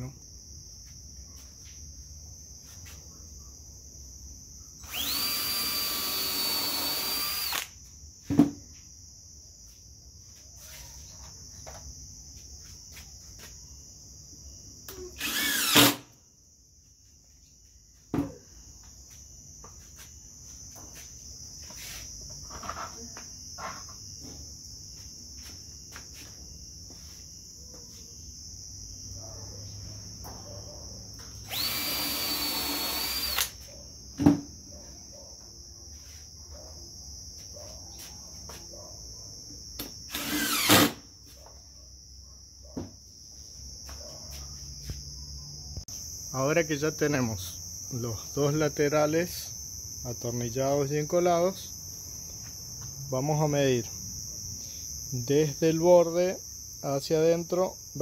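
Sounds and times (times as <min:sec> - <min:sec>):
crickets chirping: 0:00.0 - 0:58.0
cordless drill running: 0:04.8 - 0:07.7, 0:15.2 - 0:16.0, 0:31.5 - 0:33.5, 0:40.1 - 0:41.0
power tool burst: 0:04.8 - 0:07.7, 0:15.2 - 0:16.1, 0:31.5 - 0:33.5, 0:40.1 - 0:41.0.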